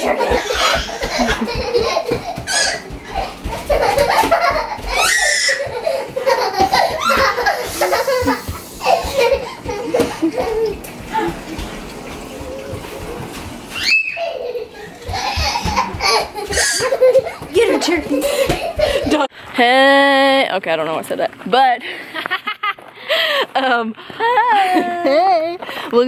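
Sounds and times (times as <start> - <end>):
toddler laughing and squealing: 0.0 - 11.4, 13.7 - 19.1
bare feet thudding on wooden floor: 0.2 - 13.6, 15.0 - 19.2.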